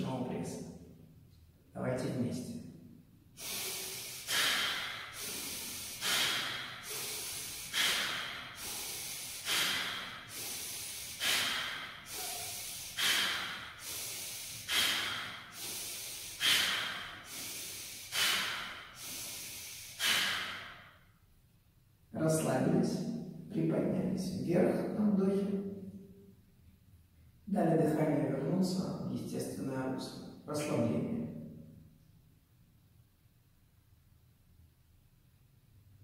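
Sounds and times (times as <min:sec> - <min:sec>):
man exhaling forcefully: 0:03.4 - 0:21.1
quiet inhale: 0:03.4 - 0:21.2.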